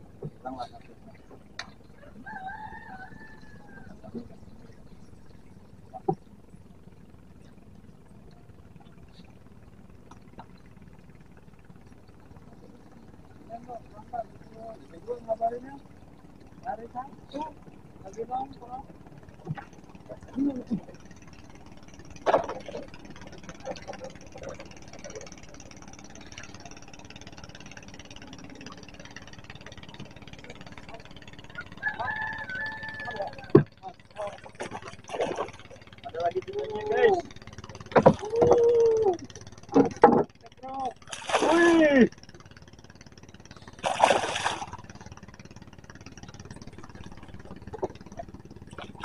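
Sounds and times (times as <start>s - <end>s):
faint steady hum: 0.0s - 49.0s
small engine idling: 0.0s - 49.0s
paddle knocks and splashes: 22.2s - 22.9s, 33.5s - 35.7s, 37.8s - 38.6s, 39.7s - 40.4s, 41.0s - 41.8s, 43.8s - 45.0s.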